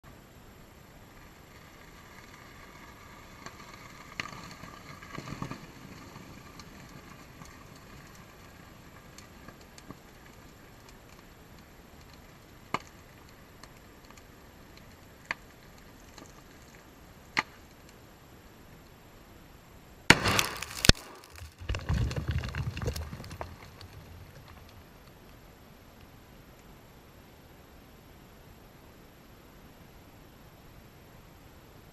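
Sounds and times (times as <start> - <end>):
hissing flare burning: 0.5 - 18.8, 20.0 - 25.5
sharp pops: 20.1 - 24.7.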